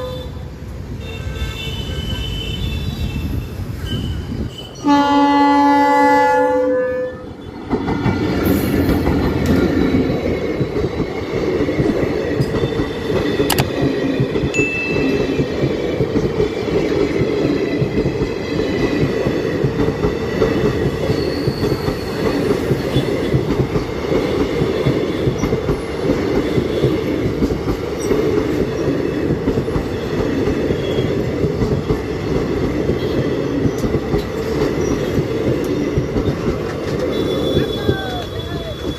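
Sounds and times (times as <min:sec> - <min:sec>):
train wheels rumbling on rails: 0:00.0 - 0:38.9
faint wheel squeal: 0:21.1 - 0:22.5.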